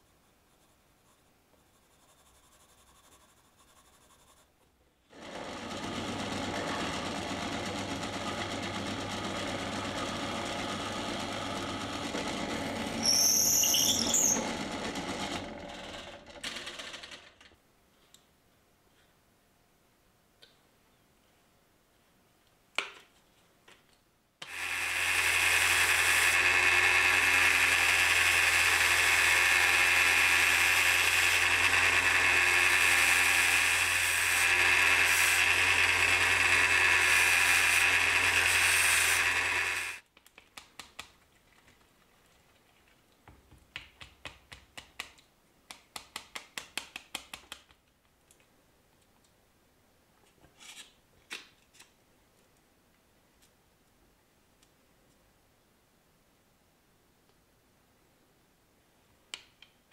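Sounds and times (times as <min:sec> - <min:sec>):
belt sander grinding: 0:05.1 - 0:16.9, 0:24.4 - 0:40.0.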